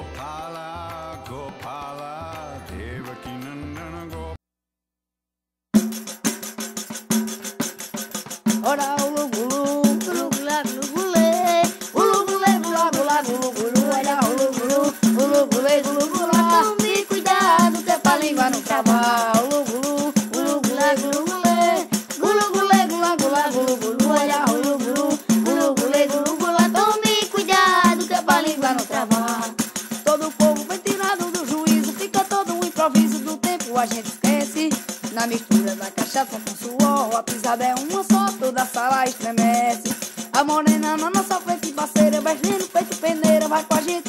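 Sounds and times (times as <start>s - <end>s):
fast percussion: 0.0s - 4.4s, 5.8s - 44.0s
person singing: 0.0s - 4.4s, 8.6s - 44.0s.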